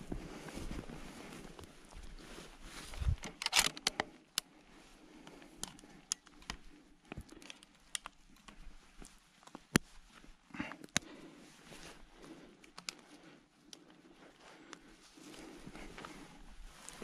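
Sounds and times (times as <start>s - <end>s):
twigs cracking: 5.3s - 17.0s
footsteps in forest undergrowth: 6.6s - 17.0s.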